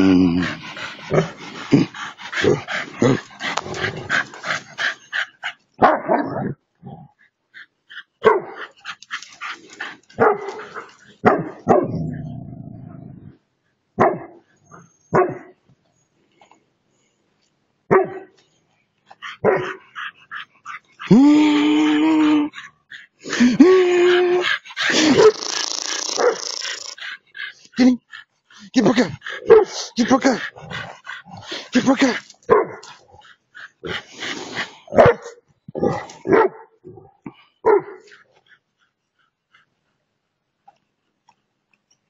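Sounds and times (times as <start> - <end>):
dog barking: 5.8 - 6.4, 8.2 - 8.7, 10.2 - 12.0, 14.0 - 14.4, 15.1 - 15.5, 17.9 - 18.3, 19.4 - 19.8, 25.0 - 25.4, 26.2 - 26.6, 29.3 - 29.8, 32.5 - 32.9, 34.9 - 36.8, 37.6 - 38.1.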